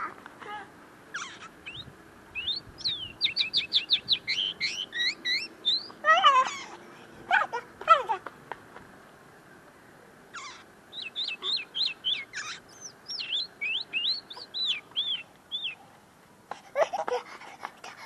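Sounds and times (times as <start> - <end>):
bird singing whistled notes: 1.2 - 6.0, 10.9 - 15.8.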